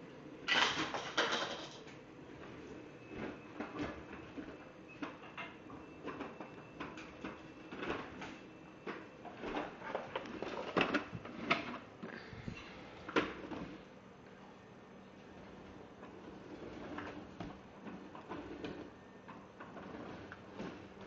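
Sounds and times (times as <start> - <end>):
plastic toy car rattling on floor: 0.5 - 1.9.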